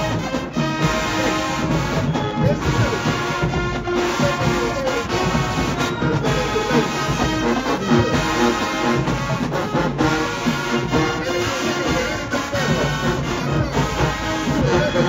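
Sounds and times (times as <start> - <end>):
drum hits: 0.0 - 15.0
marching band brass: 0.0 - 15.0.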